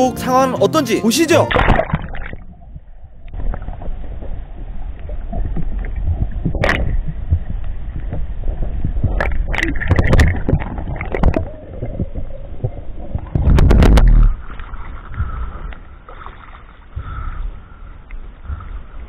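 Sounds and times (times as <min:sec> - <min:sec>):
water rushing and gurgling: 0:00.0 - 0:19.0
loud water splash: 0:01.3 - 0:02.5
water slapping against camera: 0:01.4 - 0:04.4, 0:05.0 - 0:17.4.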